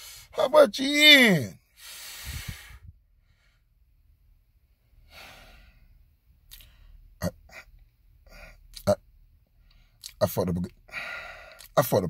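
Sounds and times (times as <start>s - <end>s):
man breathing out softly: 1.8s - 3.6s, 10.9s - 11.7s.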